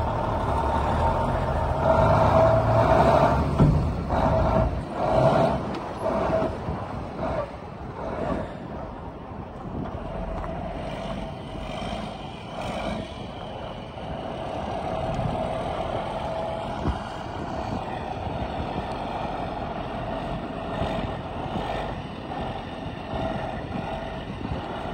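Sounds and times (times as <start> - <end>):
diesel truck engine running: 0.0 - 24.9.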